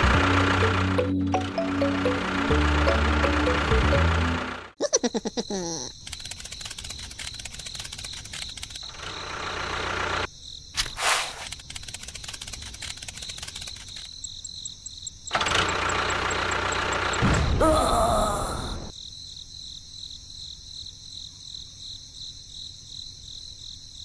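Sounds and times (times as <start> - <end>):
small electric motor ticking: 5.9 - 10.3, 11.4 - 17.2.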